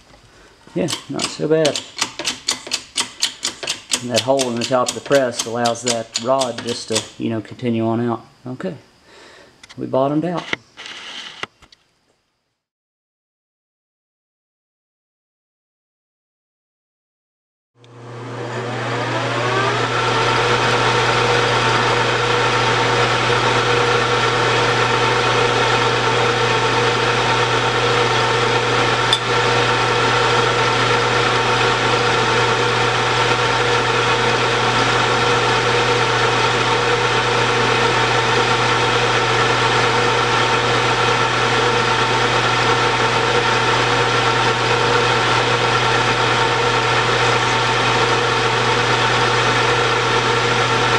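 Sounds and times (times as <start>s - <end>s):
metal lathe motor humming: 0.8s - 7.2s, 17.8s - 50.9s.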